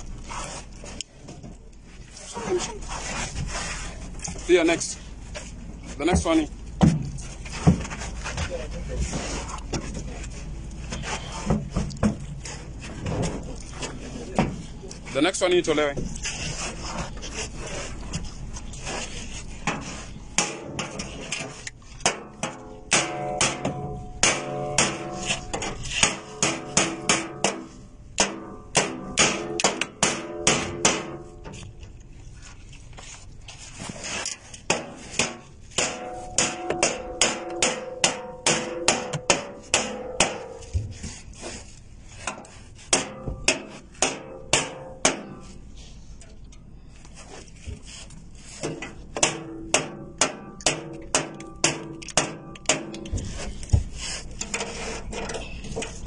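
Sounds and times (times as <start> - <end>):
low steady hum: 0.0 - 56.0
rubbing noise: 2.0 - 4.8, 16.1 - 20.3
sharp knocks: 22.0 - 31.4, 34.7 - 40.9, 42.9 - 45.4.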